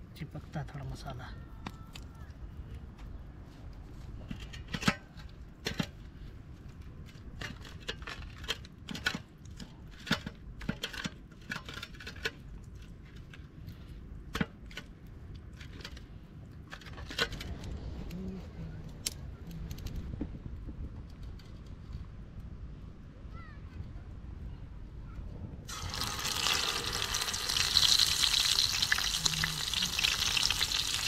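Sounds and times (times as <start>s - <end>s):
small hard objects clinking: 25.7s - 31.0s.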